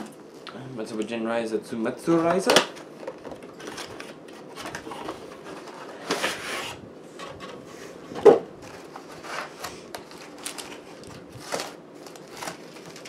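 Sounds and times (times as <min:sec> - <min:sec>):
cardboard packaging rustling: 0:02.1 - 0:06.8, 0:08.6 - 0:13.0.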